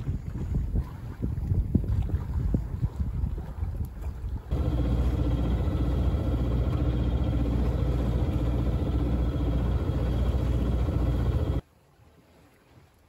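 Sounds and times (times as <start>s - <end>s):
boat engine humming: 4.3s - 11.6s.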